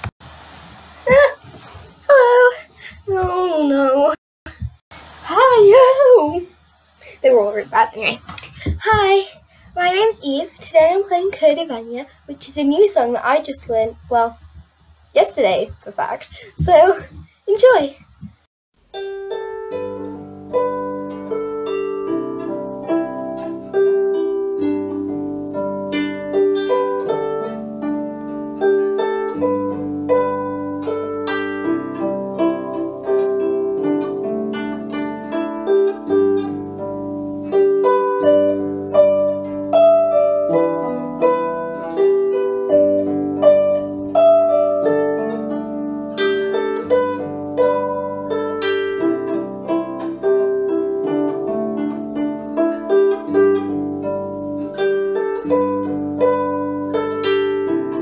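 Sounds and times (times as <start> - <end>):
harp plucked melody: 18.8 - 58.0.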